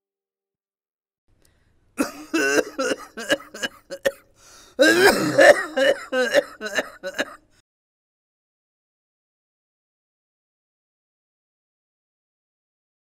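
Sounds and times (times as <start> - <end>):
man coughing hard: 2.0 - 7.5.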